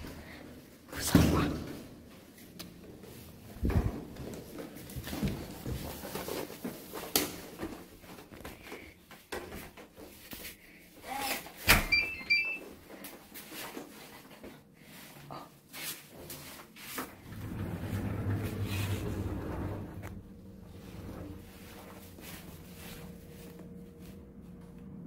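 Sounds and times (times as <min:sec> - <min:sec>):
microwave keypad beeps: 0:11.9 - 0:12.6.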